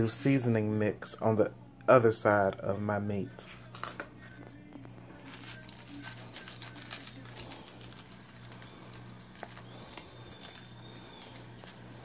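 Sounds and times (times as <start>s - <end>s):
steady low hum: 0.0s - 12.0s
paper packet rustling: 3.4s - 12.0s.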